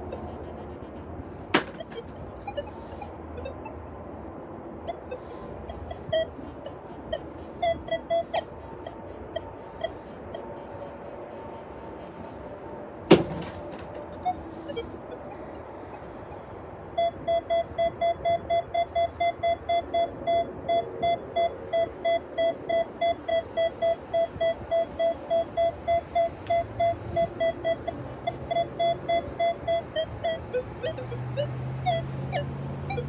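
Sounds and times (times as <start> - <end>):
metal detector beeping: 0.0 - 0.8, 1.4 - 4.0, 4.8 - 10.6, 13.1 - 33.0
sharp knock: 13.1 - 13.8.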